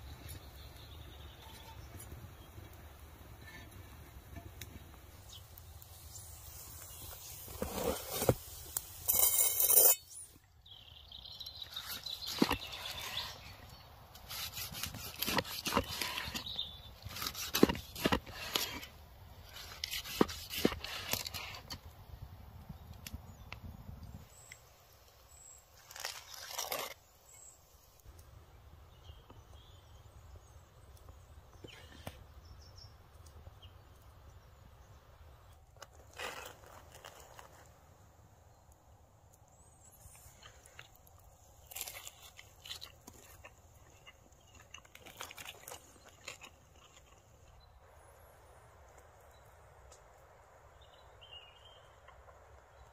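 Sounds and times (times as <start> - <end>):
faint bird chirps: 0.0 - 2.8
crunchy rustle of food handling: 4.8 - 9.4, 11.2 - 21.9, 24.2 - 28.1, 35.6 - 38.3, 39.4 - 48.0
loud scrape: 7.1 - 10.2.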